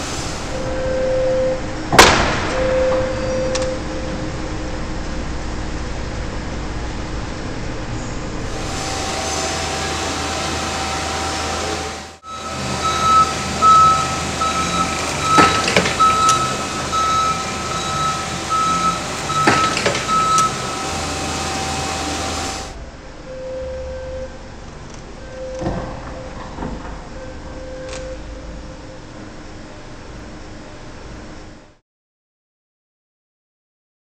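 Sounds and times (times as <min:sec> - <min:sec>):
reversing alarm beeping: 0:00.0 - 0:04.8, 0:08.4 - 0:29.2
forklift running: 0:00.0 - 0:31.6.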